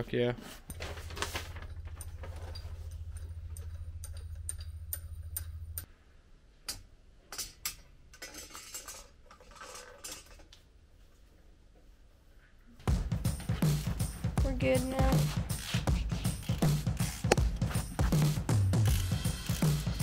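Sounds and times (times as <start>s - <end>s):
low steady hum: 0.7s - 6.3s
metal parts clinking: 7.3s - 10.5s.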